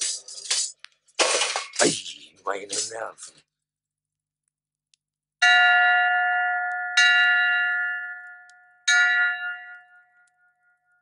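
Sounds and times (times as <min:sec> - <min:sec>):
bell ringing: 0:05.4 - 0:10.9.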